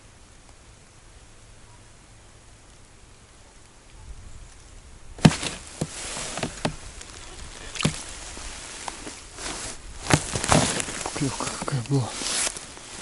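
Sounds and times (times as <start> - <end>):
snow crunching: 5.2 - 13.0
winter clothing rustling: 5.2 - 13.0.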